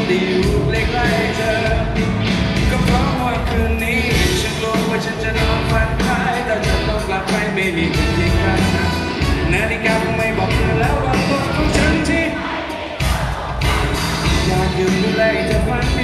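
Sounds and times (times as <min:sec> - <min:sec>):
live pop-rock band: 0:00.0 - 0:16.0
person singing lead vocal: 0:00.0 - 0:16.0.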